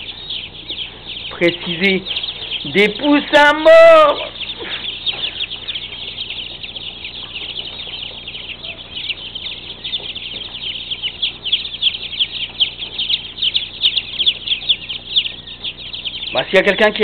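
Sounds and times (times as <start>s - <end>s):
chicks peeping: 0.0s - 17.0s.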